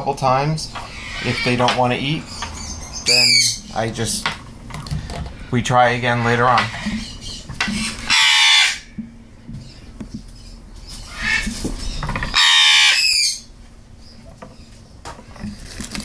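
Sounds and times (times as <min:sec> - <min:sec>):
parrot squawking: 0:00.7 - 0:04.4, 0:05.3 - 0:09.0, 0:11.0 - 0:13.5.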